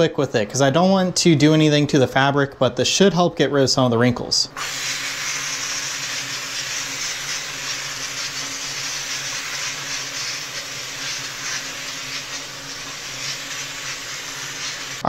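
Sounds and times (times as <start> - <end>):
steam cleaner hissing: 4.6 - 15.0.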